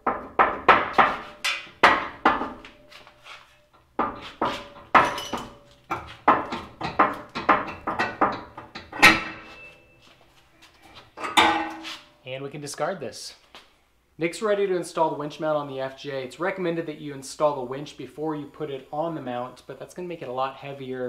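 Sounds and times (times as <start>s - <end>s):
metal bumper clanking against brackets: 0.0s - 3.0s, 3.6s - 10.0s, 11.2s - 12.0s.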